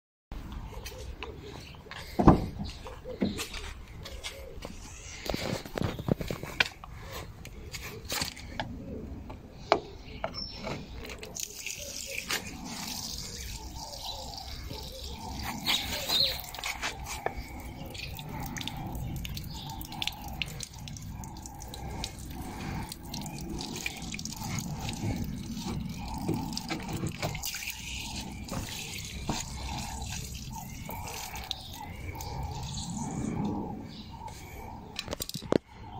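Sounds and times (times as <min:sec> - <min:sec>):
water trickling into puddle: 0:11.0 - 0:33.3
water dripping: 0:11.1 - 0:32.9.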